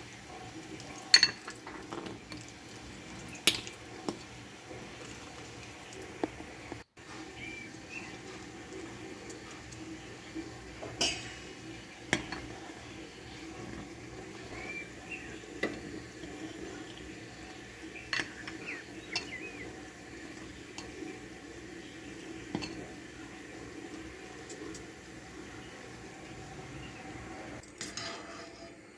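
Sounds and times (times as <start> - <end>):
porridge stirred and poured: 0.0 - 28.9
ladle clinking against glass dish: 1.1 - 1.6.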